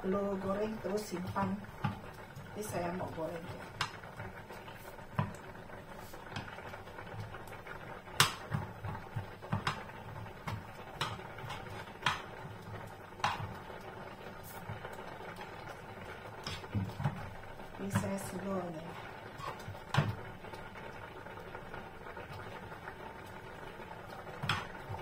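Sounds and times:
garlic frying in oil: 0:00.0 - 0:25.0
spatula scraping frying pan: 0:09.0 - 0:13.6, 0:16.3 - 0:17.3, 0:17.9 - 0:20.3.

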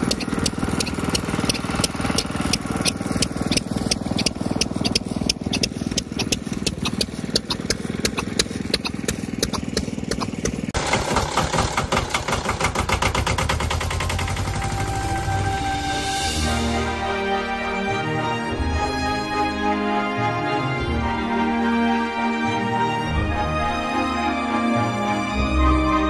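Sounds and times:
stationary engines knocking: 0:00.0 - 0:15.6.

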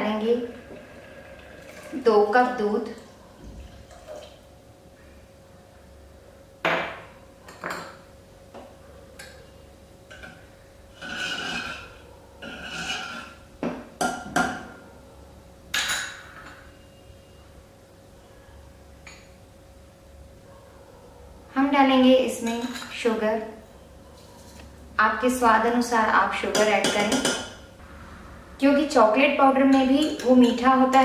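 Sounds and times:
spoon scraping around pot: 0:10.9 - 0:13.5.

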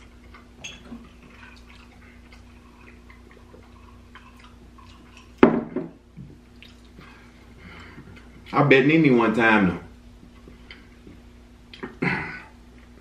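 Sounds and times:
ice clinking in a glass: 0:00.6 - 0:00.9.

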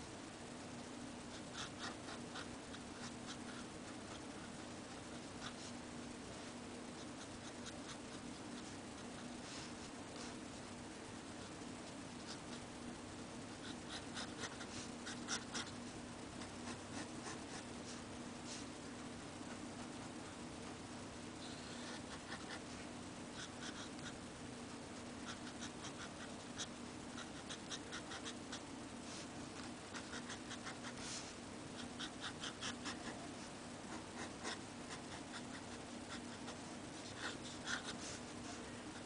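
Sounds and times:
pen nib scratching on paper: 0:01.3 - 0:05.8, 0:13.5 - 0:15.8, 0:23.4 - 0:24.2, 0:25.2 - 0:33.2, 0:33.9 - 0:39.0.

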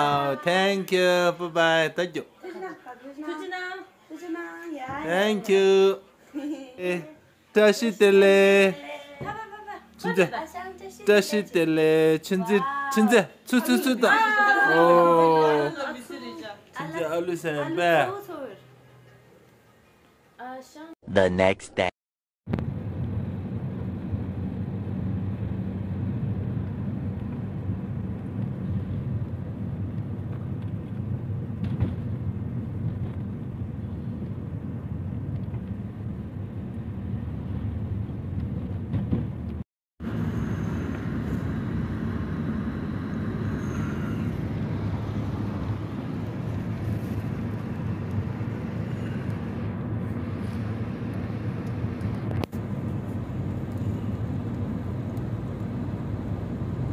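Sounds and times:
car engine and road noise: 0:22.5 - 0:56.9.

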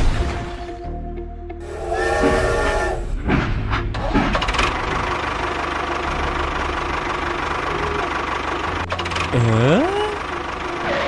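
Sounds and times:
brief horn-like tone: 0:01.6 - 0:03.1
model tractor engine running: 0:04.3 - 0:11.0.

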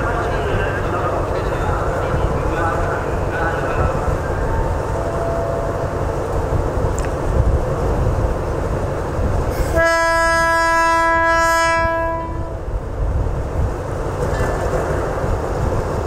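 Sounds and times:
locomotive horn: 0:09.6 - 0:12.6.

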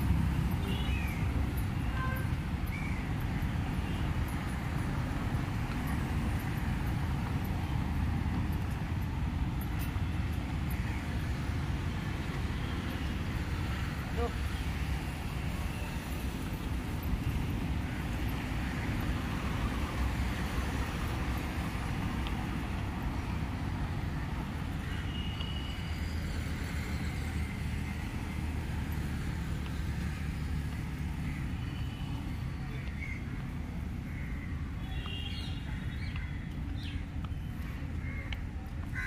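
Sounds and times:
constant traffic hiss: 0:00.0 - 0:39.0
rumble of passing vehicles: 0:00.0 - 0:39.0.

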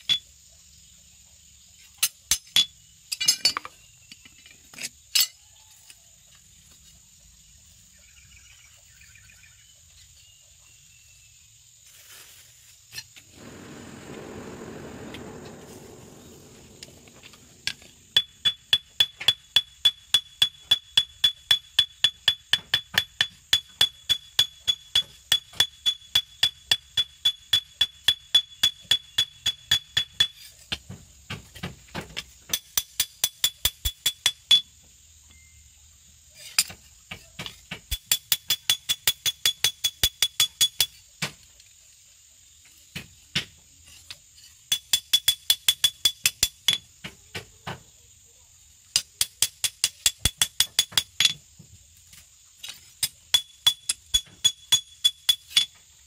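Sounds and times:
rushing noise: 0:13.3 - 0:18.7.

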